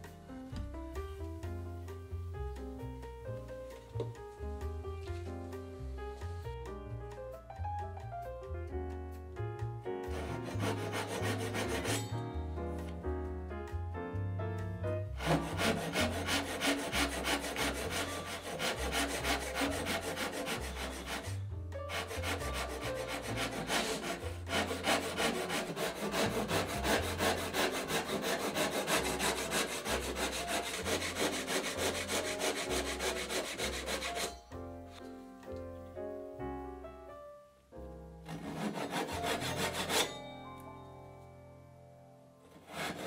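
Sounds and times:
background music with bass: 0.0s - 25.1s
hand saw rasping strokes: 10.0s - 12.2s, 15.0s - 34.4s, 38.3s - 40.4s, 42.5s - 43.0s.

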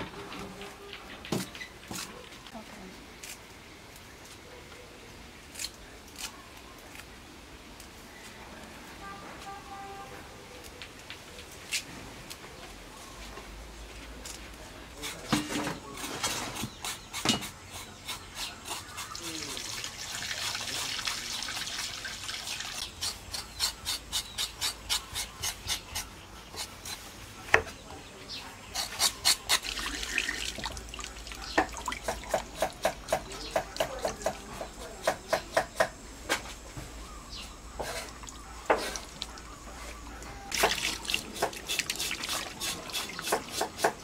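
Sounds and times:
water splashing in metal bowl: 29.6s - 32.5s, 40.5s - 43.3s.

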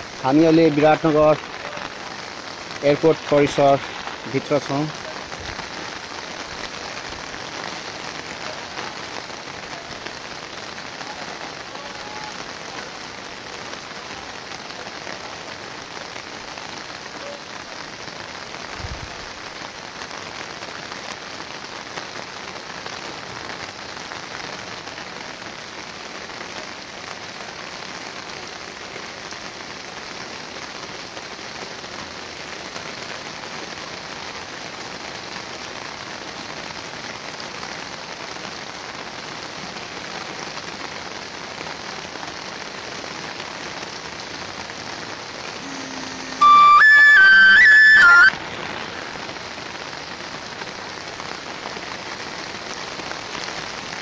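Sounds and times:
water rushing: 0.0s - 18.4s, 45.2s - 49.9s.

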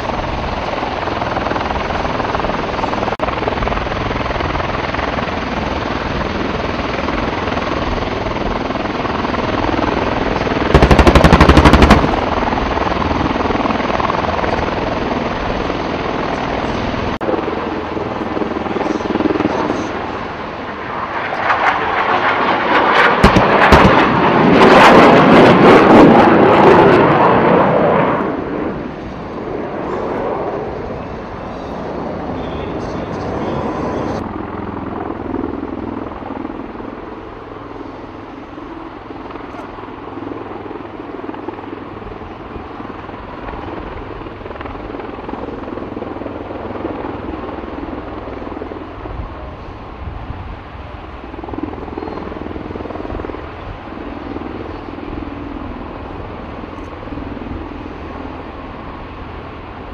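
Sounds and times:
aircraft rotors running: 0.0s - 59.9s
automatic gunfire bursts: 10.7s - 12.2s.

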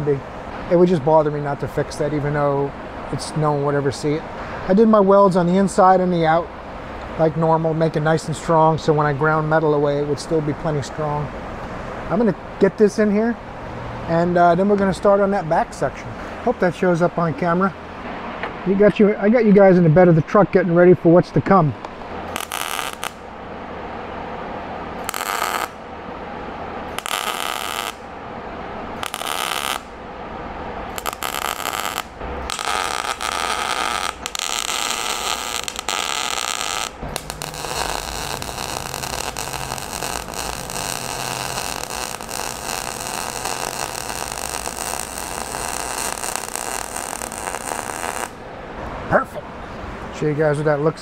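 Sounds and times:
welder arc crackling: 21.8s - 23.3s, 25.0s - 26.0s, 26.9s - 28.1s, 28.9s - 30.0s, 30.8s - 48.4s.

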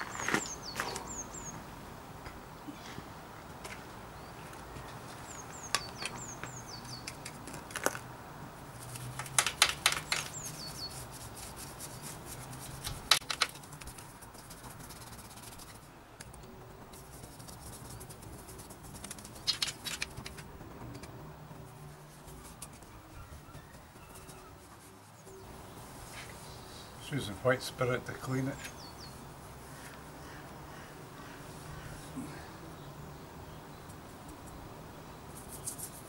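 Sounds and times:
bird chirping: 0.0s - 1.6s, 4.2s - 7.2s, 10.0s - 11.0s, 28.3s - 35.7s
brush scrubbing bicycle frame: 10.1s - 15.9s, 17.0s - 20.1s.

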